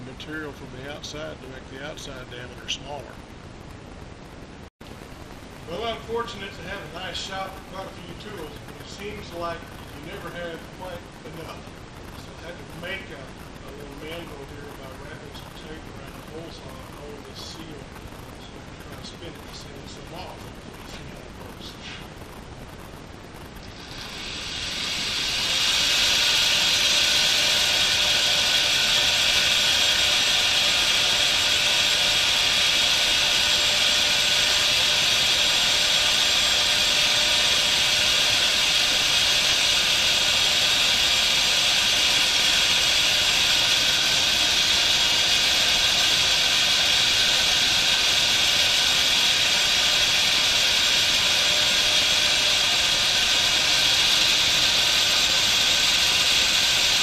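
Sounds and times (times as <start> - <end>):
electric drill running: 22.1 - 57.0.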